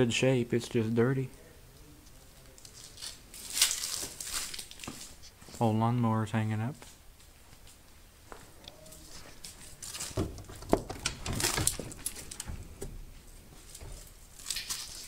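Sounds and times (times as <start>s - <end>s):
door rustling: 9.1s - 15.0s.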